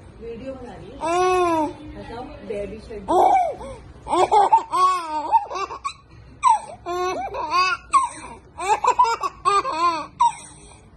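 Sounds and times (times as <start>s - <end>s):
toddler giggling: 3.1s - 10.8s.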